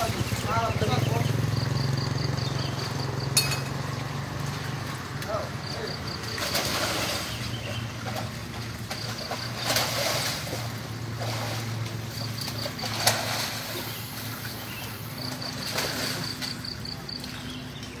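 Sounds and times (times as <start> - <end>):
soft water splashes: 0.0 - 18.0
steady low hum: 0.0 - 18.0.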